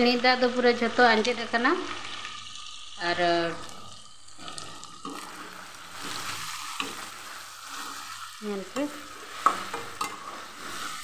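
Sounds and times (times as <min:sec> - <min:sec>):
curry sizzling in pan: 0:00.0 - 0:11.0
metal spatula scraping pan: 0:05.0 - 0:11.0.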